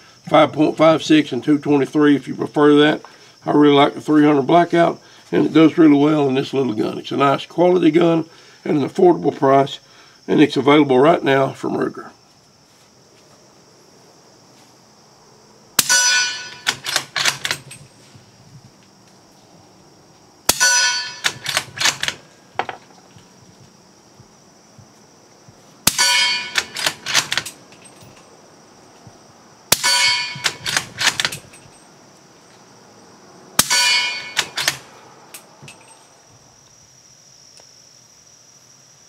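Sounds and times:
bullet clanging on steel target: 15.8 - 17.6, 20.5 - 21.6, 25.9 - 27.2, 29.8 - 31.8, 33.6 - 34.8
suppressed rifle shots: 25.9 - 27.3.

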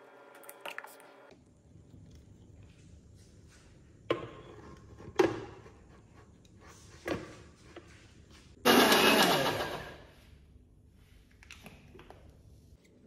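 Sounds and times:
grinder motor chopping: 8.7 - 10.0.

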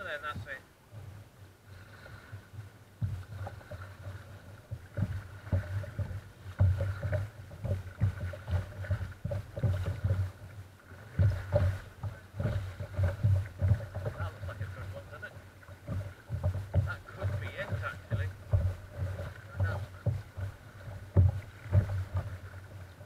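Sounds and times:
water slapping against kayak hull: 0.0 - 23.0.

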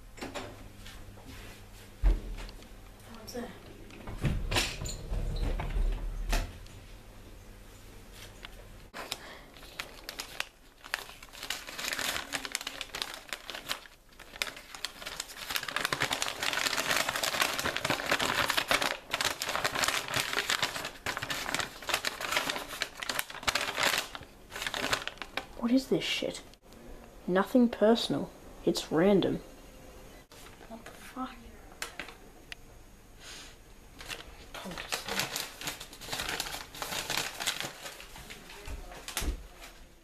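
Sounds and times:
paper crinkling and rustling: 8.1 - 25.8, 34.0 - 39.9.

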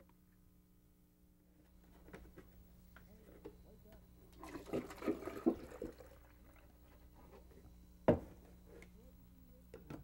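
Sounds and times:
milk pouring into plastic container: 4.4 - 6.7.

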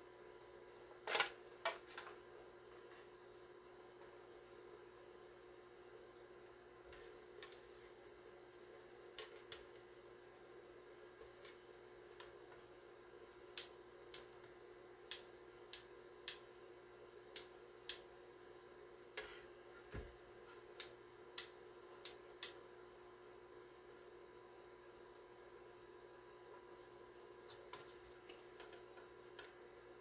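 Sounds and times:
low electrical hum: 0.0 - 30.0
sharp clicks: 15.1 - 16.4.

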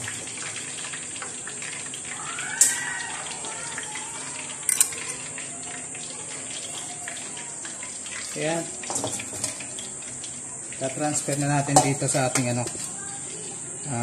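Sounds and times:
oil sizzling in a pot: 0.0 - 14.0
metal tongs clanking on pot: 4.6 - 5.2, 8.2 - 9.7, 11.2 - 13.0.

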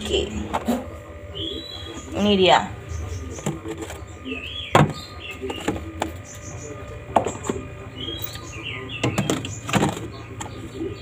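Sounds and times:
small birds chirping: 0.0 - 11.0
plastic containers knocking: 3.3 - 4.1, 4.7 - 6.3, 6.9 - 7.7, 9.0 - 10.6.

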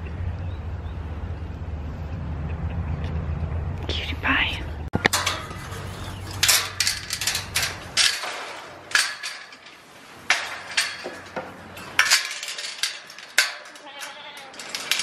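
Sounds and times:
metal gate clanking: 5.0 - 15.0.

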